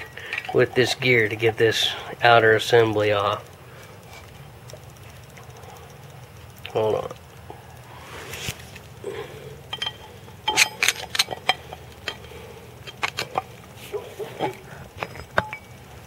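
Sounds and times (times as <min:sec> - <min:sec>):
metal tools clinking: 0:00.0 - 0:01.9, 0:09.7 - 0:15.9.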